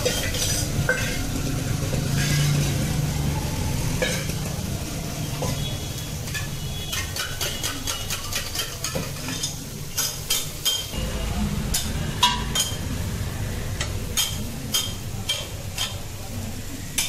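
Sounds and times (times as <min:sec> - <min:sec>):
food sizzling on griddle: 0:00.0 - 0:17.0
metal spatula clicking on griddle: 0:06.3 - 0:10.9, 0:13.8 - 0:16.0.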